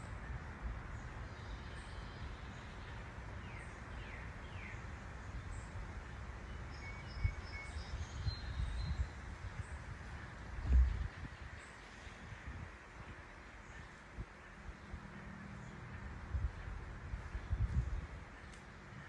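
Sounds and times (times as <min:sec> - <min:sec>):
steady low rumble: 0:07.1 - 0:19.0.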